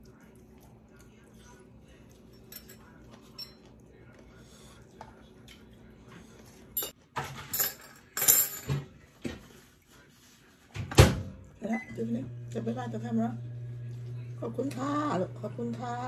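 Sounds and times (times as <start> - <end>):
tableware clinking and clattering: 2.4 - 3.7, 6.7 - 8.9.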